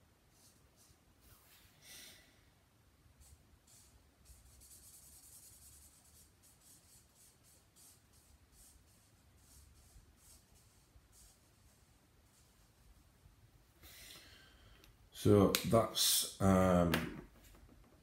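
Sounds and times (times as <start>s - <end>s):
marker scratching on paper: 0.3s - 1.7s, 3.2s - 13.1s.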